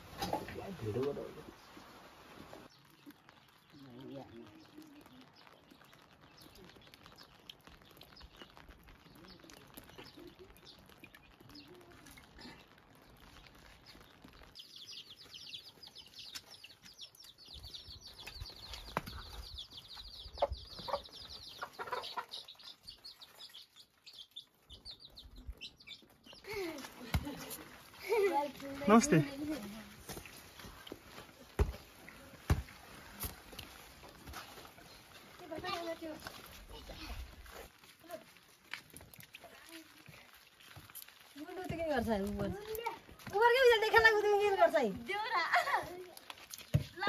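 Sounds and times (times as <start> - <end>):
chicks peeping: 4.4 - 26.9.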